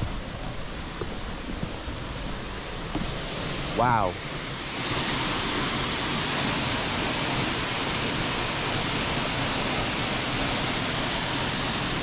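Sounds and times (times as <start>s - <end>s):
waterfall rushing water: 0.0s - 12.0s.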